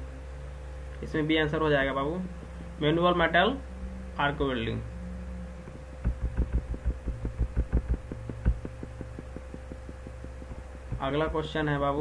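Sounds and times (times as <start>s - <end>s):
electrical hum: 0.0s - 12.0s
low thumps: 3.6s - 11.8s
fast even ticking: 5.7s - 11.8s.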